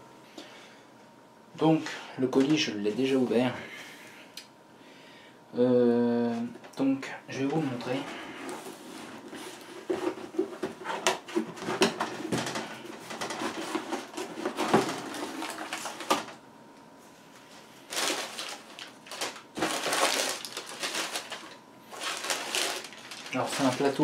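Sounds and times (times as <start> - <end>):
paper packing rustling: 7.6 - 16.4, 17.4 - 24.0.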